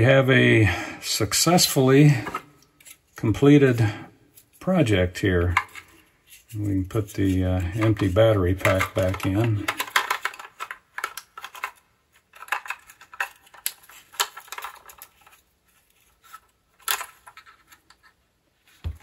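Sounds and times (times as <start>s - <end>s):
plastic clicks and rattles: 7.8s - 15.4s, 16.3s - 18.2s.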